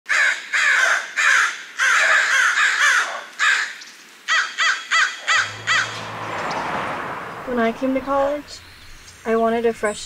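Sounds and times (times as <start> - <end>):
harsh caw-like bird calls: 0.1 - 6.7.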